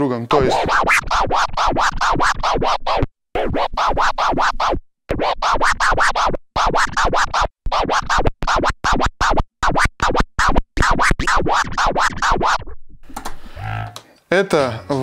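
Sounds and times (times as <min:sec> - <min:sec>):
vinyl scratching: 0:00.3 - 0:13.6.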